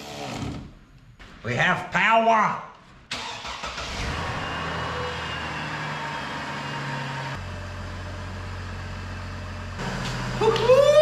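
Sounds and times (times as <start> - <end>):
car engine idling: 3.2 - 11.0.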